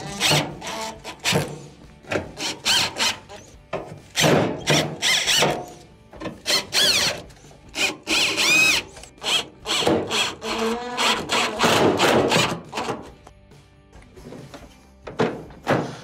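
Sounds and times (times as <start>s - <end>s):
cordless drill whining: 2.4s - 3.6s, 4.6s - 5.8s, 6.4s - 11.6s.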